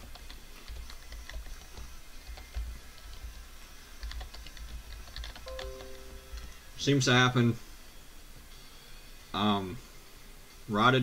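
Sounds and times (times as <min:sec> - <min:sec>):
typing on keyboard: 0:00.0 - 0:03.3, 0:04.0 - 0:06.5.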